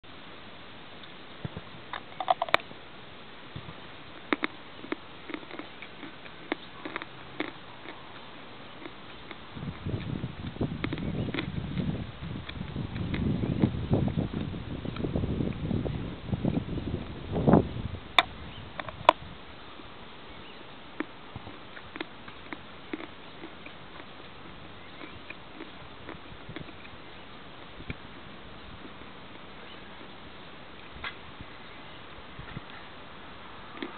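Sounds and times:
faint hiss: 0.1 - 10.7
mouth clicks and smacks: 1.9 - 2.7, 4.2 - 8.2, 8.8 - 15.7, 21.0 - 24.1, 24.9 - 27.0, 33.7 - 33.9
person biting and chewing food: 1.9 - 2.7, 4.2 - 15.7, 21.0 - 27.0, 33.7 - 33.9.

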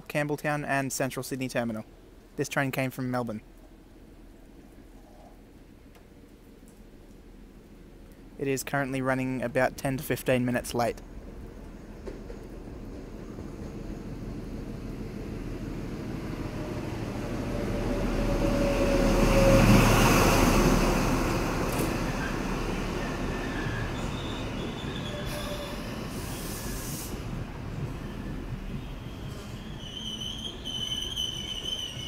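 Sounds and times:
diesel train passing: 9.4 - 32.0
train wheels squealing: 23.0 - 27.2, 27.9 - 32.0.

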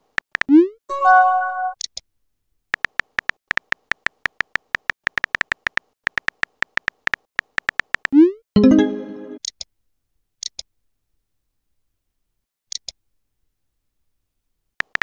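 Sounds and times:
keyboard click ticks: 2.8 - 8.1.

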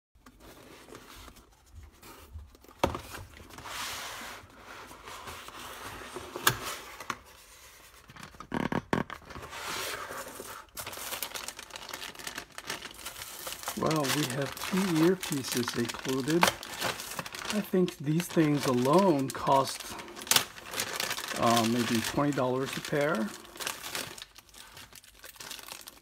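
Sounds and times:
plastic bags rustling: 9.8 - 26.0.

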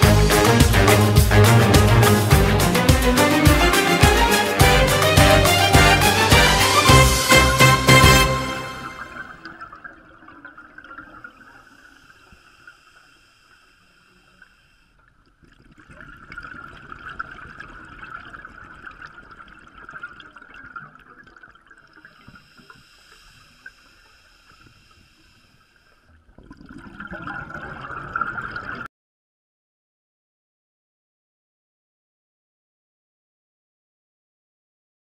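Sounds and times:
bubbling underwater exhalations: 26.3 - 28.9.

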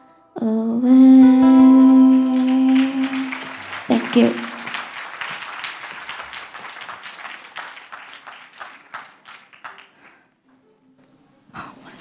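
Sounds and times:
audience applauding: 1.8 - 10.3.

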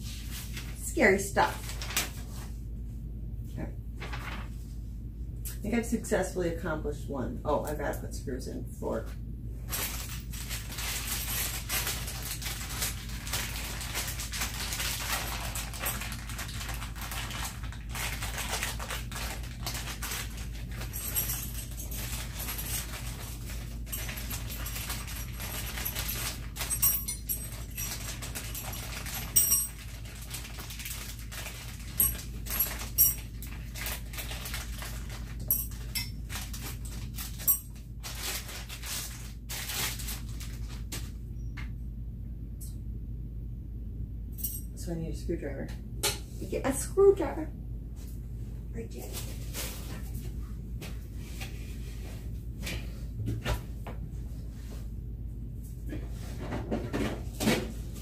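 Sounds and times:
steady low hum: 0.0 - 58.0
small metal screws clinking: 23.9 - 29.9, 32.0 - 33.3.

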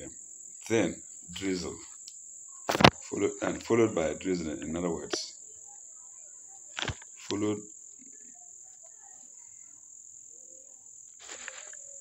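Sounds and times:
man's voice murmuring: 0.0 - 1.9, 3.0 - 5.3, 7.2 - 7.7
high-pitched insect trill: 0.0 - 12.0.

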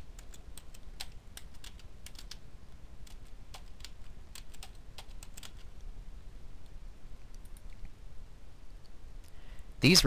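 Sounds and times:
computer keyboard typing: 0.2 - 2.4, 3.0 - 5.7.

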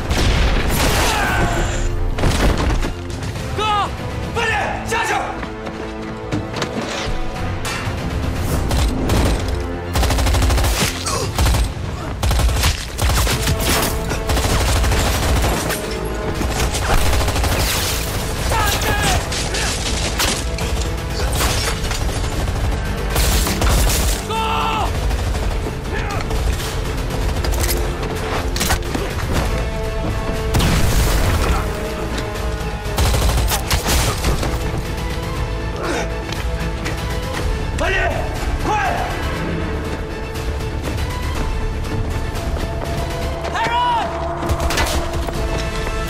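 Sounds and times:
dramatic film score: 0.0 - 46.0
rapid gunfire: 9.9 - 15.8, 16.6 - 18.4, 21.3 - 24.1, 24.8 - 27.7, 32.9 - 34.2.

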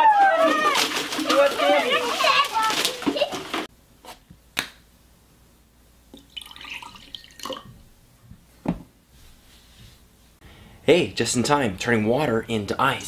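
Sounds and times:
liquid splashing into a glass: 6.2 - 7.7.

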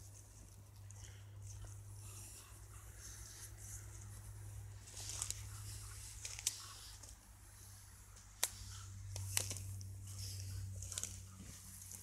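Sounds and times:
twigs snapping: 8.2 - 10.0.

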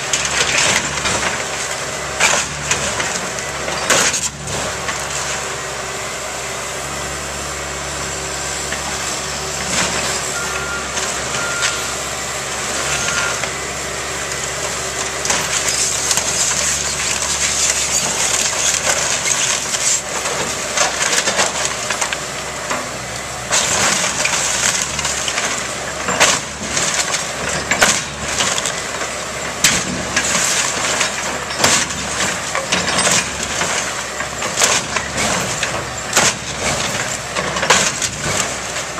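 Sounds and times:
debris cracking and splintering: 0.0 - 5.4, 14.4 - 38.9
excavator engine running: 0.0 - 38.9.

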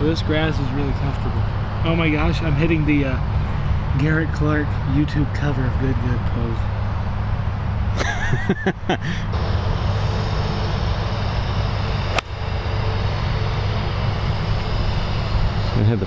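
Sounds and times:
steady low rumble: 0.0 - 16.0
golf club striking ball: 12.1 - 12.6.

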